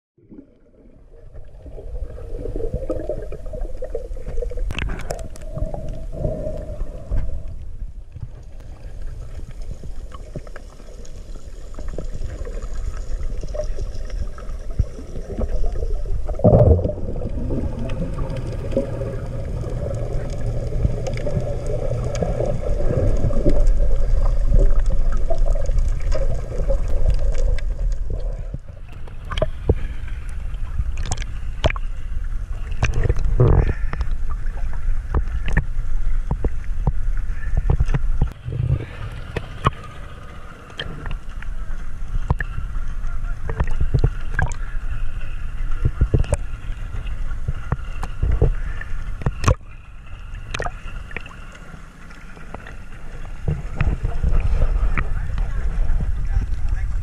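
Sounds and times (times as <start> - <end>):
muffled underwater rumble: 0.2 - 57.0
knocks underwater: 16.4 - 18.9, 47.4 - 48.6, 53.4 - 56.1.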